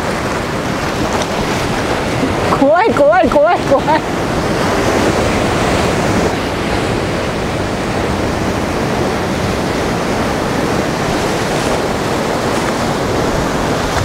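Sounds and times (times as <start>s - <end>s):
sea surf breaking on rocks: 0.0s - 14.0s.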